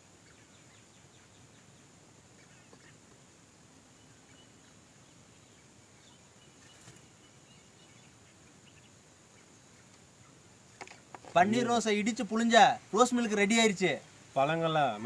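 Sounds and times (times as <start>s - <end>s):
faint chirps: 0.0s - 11.8s
steady high hiss: 0.0s - 15.0s.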